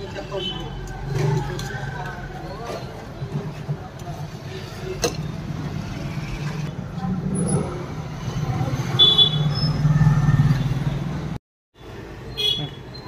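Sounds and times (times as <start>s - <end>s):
vehicle engines rumbling: 0.0s - 13.0s.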